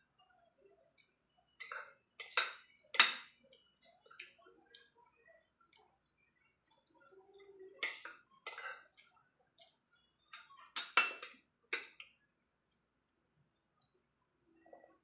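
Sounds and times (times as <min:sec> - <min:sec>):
cutlery clinking on a plate: 0:01.6 - 0:03.4, 0:07.8 - 0:08.9, 0:10.3 - 0:12.1.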